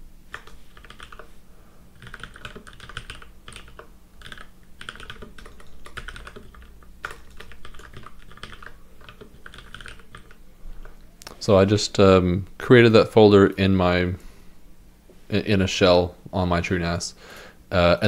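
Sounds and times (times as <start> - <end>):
typing on keyboard: 0.3 - 1.3, 2.0 - 10.4.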